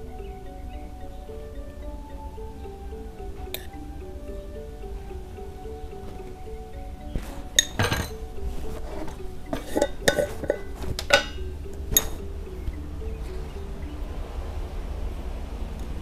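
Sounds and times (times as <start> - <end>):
background music simple melody: 0.0 - 16.0
metallic clinks on a steel bowl: 7.1 - 8.2, 9.0 - 12.3.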